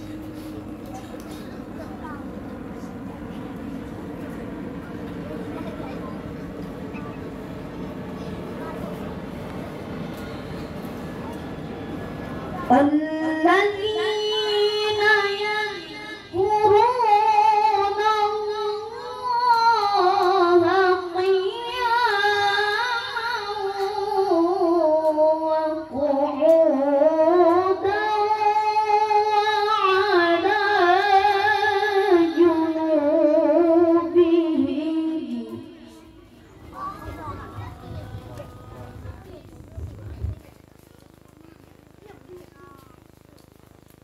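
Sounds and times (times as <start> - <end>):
breaths: 0.0 - 0.7
child chanting: 12.4 - 39.6.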